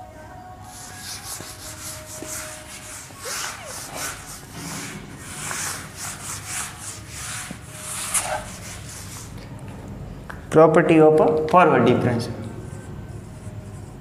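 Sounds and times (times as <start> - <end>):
eraser rubbing a whiteboard: 0.7 - 9.5, 12.6 - 14.0.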